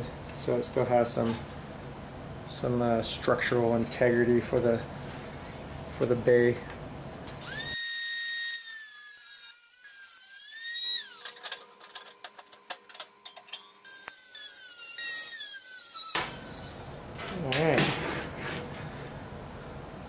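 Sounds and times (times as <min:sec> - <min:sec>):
rotary tool cutting metal: 0:07.3 - 0:12.0, 0:13.3 - 0:16.8.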